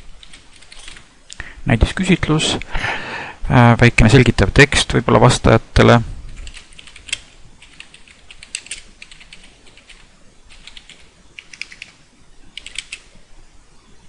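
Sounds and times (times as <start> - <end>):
keyboard keys clicking: 6.4 - 12.0, 12.6 - 13.0.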